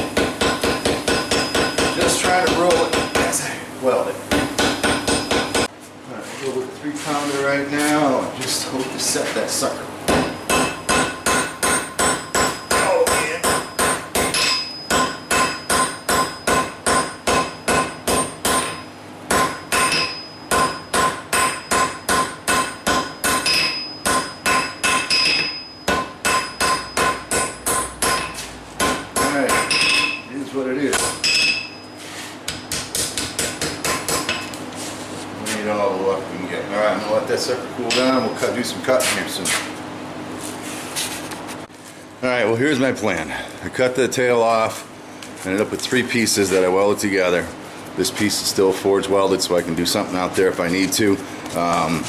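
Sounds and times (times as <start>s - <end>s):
hammer striking steel on anvil: 0.0s - 3.4s, 4.3s - 5.7s, 10.1s - 30.3s, 30.9s - 31.8s
anvil ringing: 0.4s - 3.4s, 10.2s - 30.3s, 31.0s - 31.8s.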